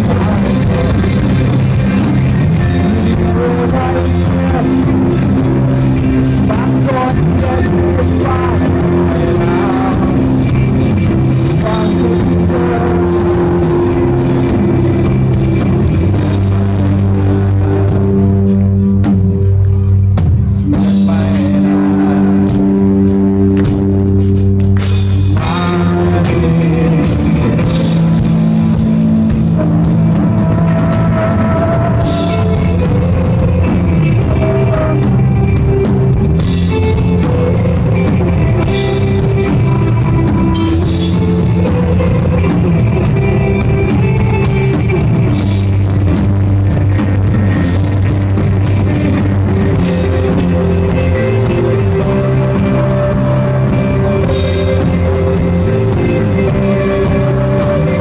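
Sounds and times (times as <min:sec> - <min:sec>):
person singing: 0:00.0 - 0:18.8, 0:20.5 - 0:23.9, 0:25.4 - 0:35.5, 0:48.6 - 0:58.0
drum kit: 0:00.0 - 0:58.0
electric bass: 0:00.0 - 0:58.0
electric guitar: 0:00.0 - 0:58.0.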